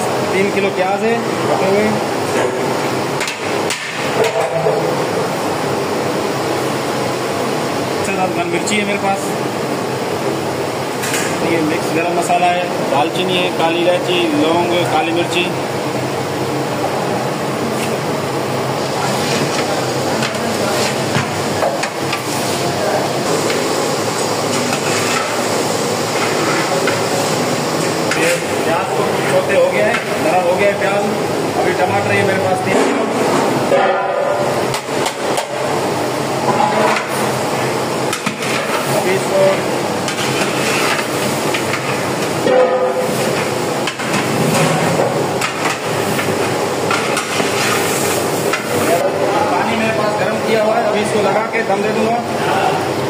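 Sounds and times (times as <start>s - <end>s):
frying in oil hissing: 16.4s - 31.9s, 33.0s - 53.0s.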